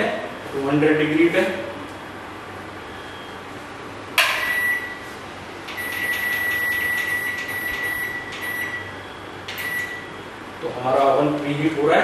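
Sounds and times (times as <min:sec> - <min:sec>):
high beeps: 0:04.4 - 0:05.0, 0:05.8 - 0:10.2.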